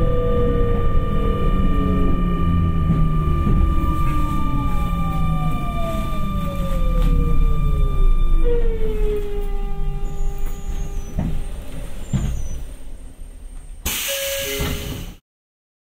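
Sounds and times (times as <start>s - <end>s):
electric train motor whine: 0.0s - 13.2s
low running rumble: 0.0s - 13.8s
loud hiss of air: 13.8s - 15.2s.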